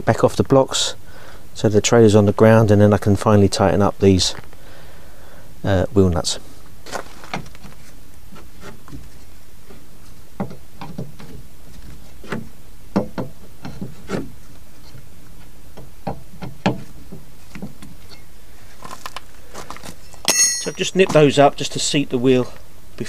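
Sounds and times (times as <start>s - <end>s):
steady background hiss: 0.0s - 23.0s.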